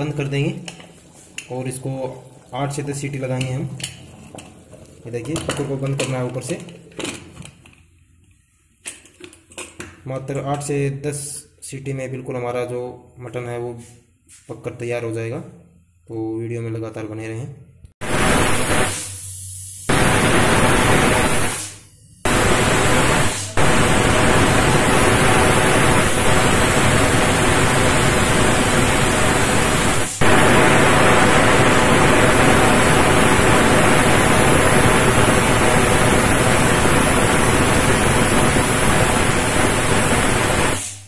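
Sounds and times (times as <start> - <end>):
loud steam hiss: 18.0 - 41.0.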